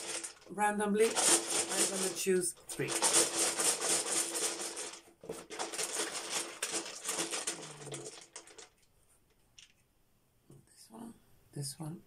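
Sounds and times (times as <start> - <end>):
dice rattling in a hat: 0.0 - 8.9, 9.6 - 9.8.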